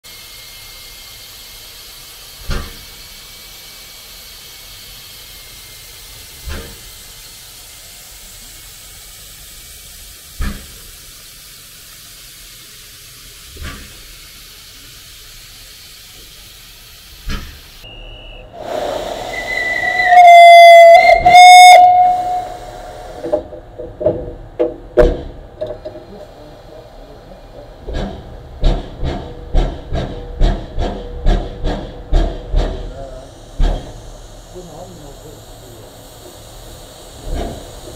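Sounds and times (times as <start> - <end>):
steam locomotive hissing: 0.0 - 37.9
steam whistle blasts: 17.8 - 23.3.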